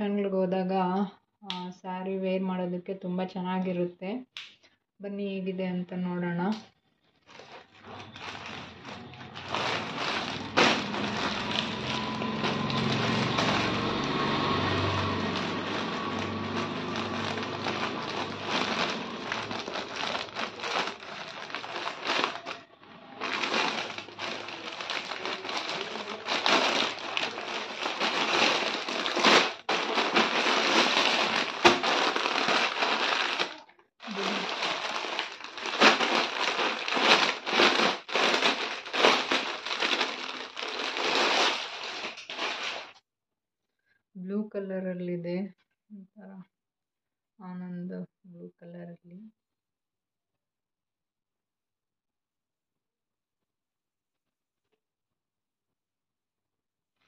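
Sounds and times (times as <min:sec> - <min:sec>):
plastic packaging crinkling: 0:07.1 - 0:43.0.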